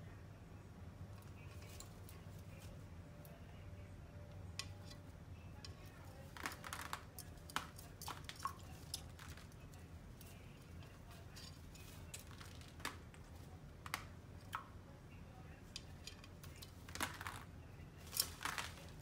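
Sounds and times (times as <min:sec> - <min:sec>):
low steady hum: 0:00.0 - 0:19.0
parrot splashing in water dish: 0:06.4 - 0:09.6.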